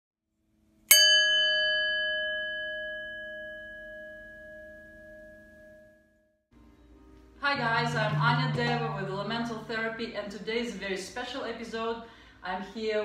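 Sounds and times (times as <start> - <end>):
faint low drone: 7.4 - 10.6
struck metal chime ringing: 7.6 - 10.2.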